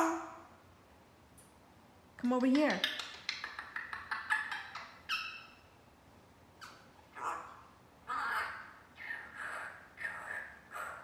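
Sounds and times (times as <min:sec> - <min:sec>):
parrot chattering: 0:02.5 - 0:05.7, 0:06.6 - 0:11.0.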